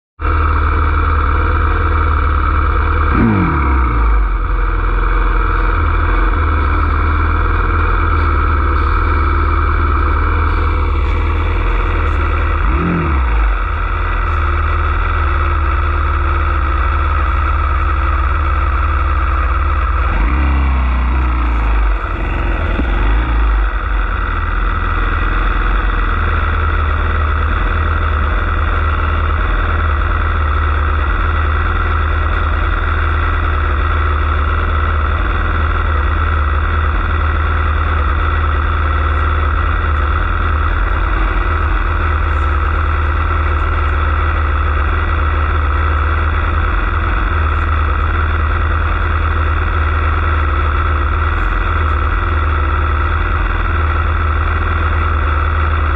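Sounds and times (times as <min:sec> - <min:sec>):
dirt bike engine idling: 0:00.2 - 0:55.9.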